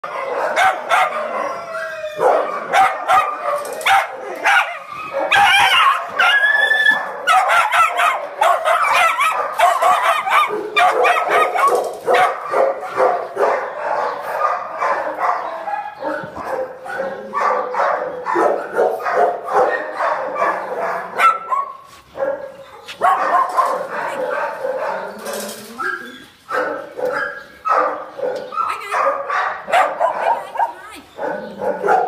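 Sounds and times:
dogs and puppies barking: 0.0s - 32.0s
high-pitched dog cries: 0.1s - 11.8s.

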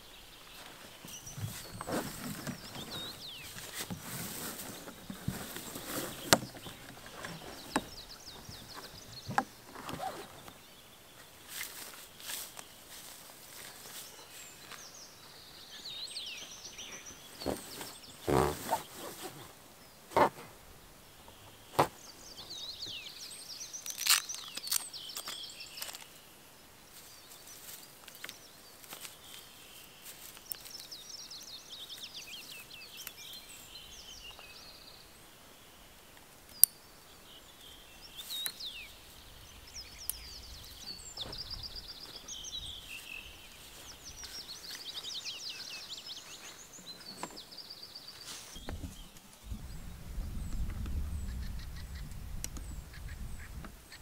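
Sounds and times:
songbirds singing: 0.0s - 54.0s
clicks from handling solar panel: 4.6s - 8.0s.

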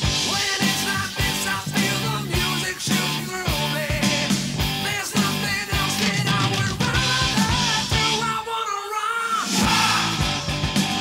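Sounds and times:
rock song with singing: 0.0s - 11.0s
drum beat: 9.6s - 11.0s.

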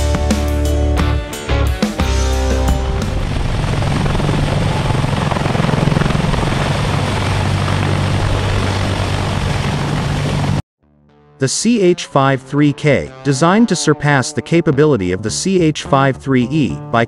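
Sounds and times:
helicopter rushing noise: 1.8s - 10.6s
helicopter low thrum: 2.0s - 10.6s.

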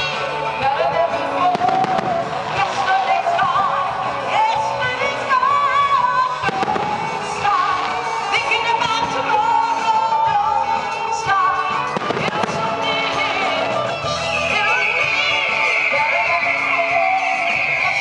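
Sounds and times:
music with sung melody: 0.0s - 18.0s
firework bangs: 1.5s - 3.6s, 6.4s - 8.4s, 11.9s - 13.7s.

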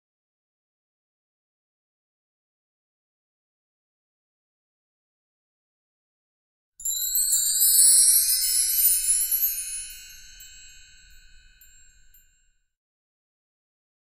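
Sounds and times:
sparkling chime: 6.8s - 12.4s.

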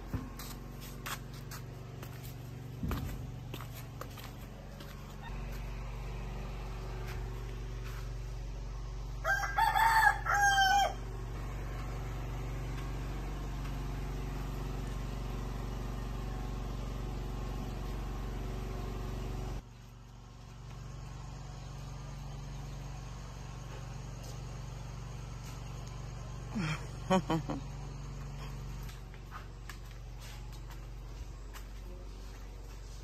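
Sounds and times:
steady low hum: 0.0s - 33.0s
rooster crowing: 9.1s - 11.2s.

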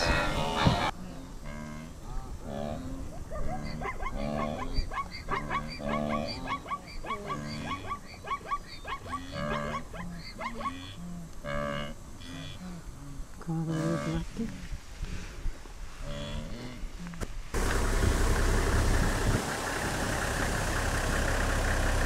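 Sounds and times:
wildebeest grunting calls: 0.0s - 14.3s.

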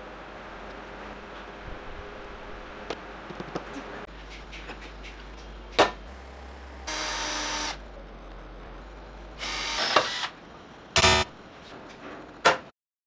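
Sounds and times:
electric drill drilling metal: 6.8s - 7.8s, 9.4s - 10.3s.

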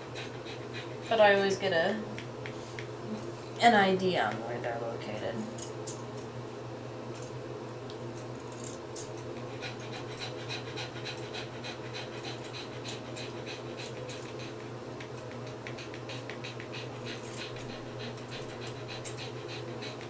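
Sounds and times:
dog panting: 0.0s - 2.3s, 9.2s - 20.0s
steady low hum: 0.0s - 20.0s.

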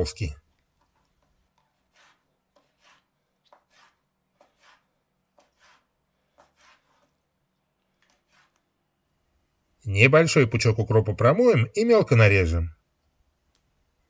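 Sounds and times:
knife slicing on wooden board: 1.5s - 7.2s, 8.0s - 8.6s.

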